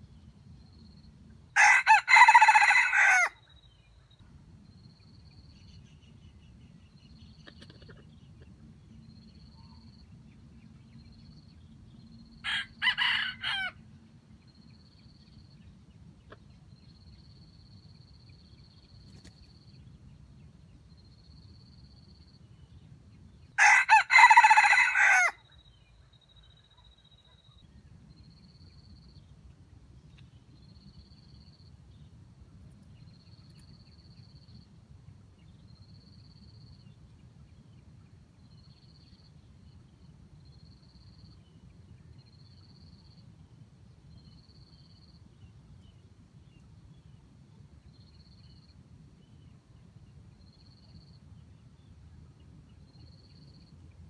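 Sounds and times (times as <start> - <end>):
rooster crowing: 1.6 - 3.4, 12.4 - 13.8, 23.6 - 25.4.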